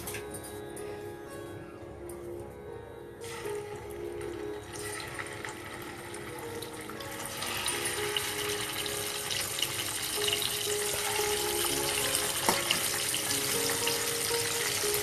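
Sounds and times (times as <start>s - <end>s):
hot oil sizzling in a frying pan: 4.6s - 15.0s.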